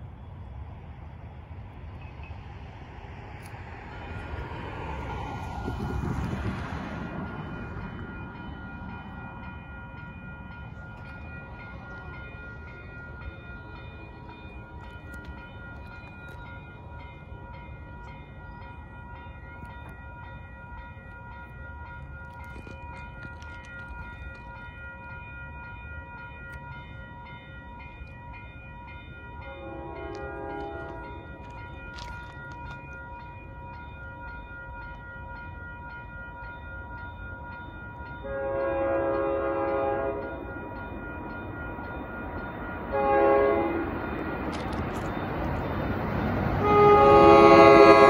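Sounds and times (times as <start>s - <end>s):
crossing warning bell ringing: 1.6s - 48.0s.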